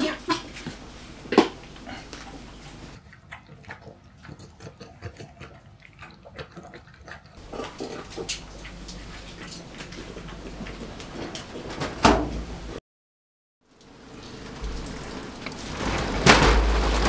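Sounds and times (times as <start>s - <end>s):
dog eating smacking and lapping: 3.0s - 11.4s.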